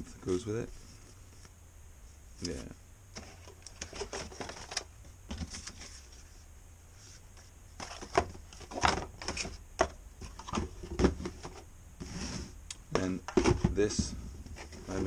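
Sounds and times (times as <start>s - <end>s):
cardboard tray sliding: 10.3s - 12.6s.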